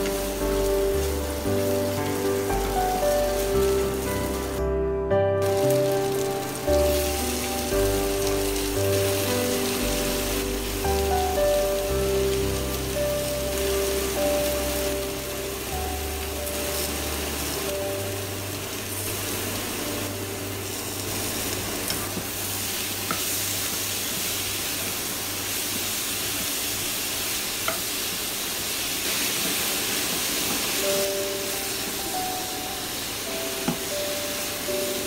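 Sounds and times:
food sizzling in a wok: 0.0 - 4.7, 5.4 - 35.0.

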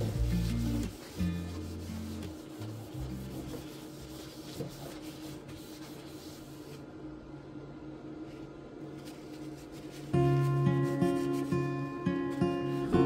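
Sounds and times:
paper towel rubbing on metal tray: 0.0 - 6.8, 9.0 - 13.0.

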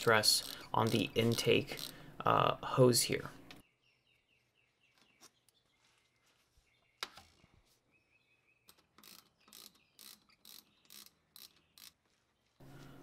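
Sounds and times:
ratchet strokes: 0.3 - 2.0, 9.0 - 12.0.

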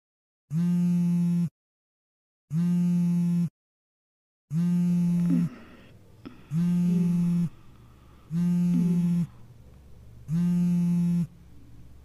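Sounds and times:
mobile phone buzzing: 0.5 - 1.5, 2.5 - 3.5, 4.5 - 9.5, 10.2 - 11.4.

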